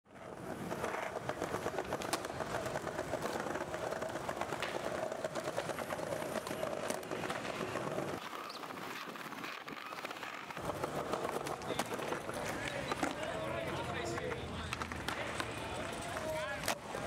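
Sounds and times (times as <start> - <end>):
skateboard wheels rolling on pavement: 0.0 - 17.0.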